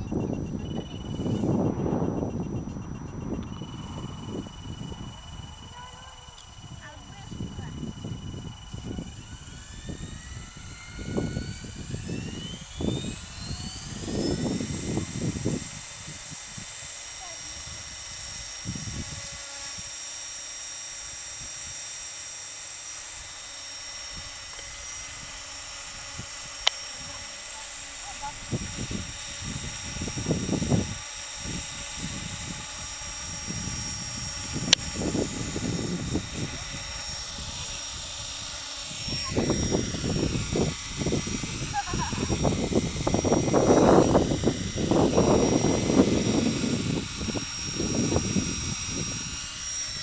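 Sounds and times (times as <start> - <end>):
gusty rumbling: 0.0 - 16.9, 28.3 - 50.0
wind buffeting microphone: 0.0 - 20.0, 23.1 - 50.0
model helicopter rotor whine: 0.0 - 50.0.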